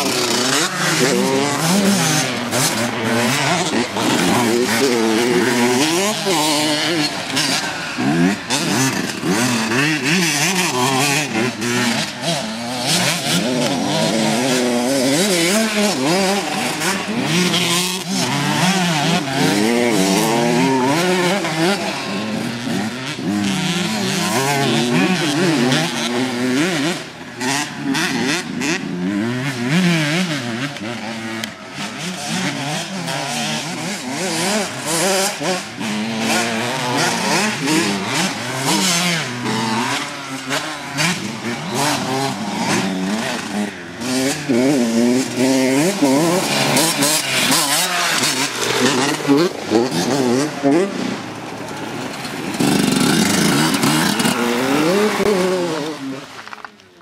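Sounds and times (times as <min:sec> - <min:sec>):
dirt bike engines revving: 0:00.0 - 0:57.0.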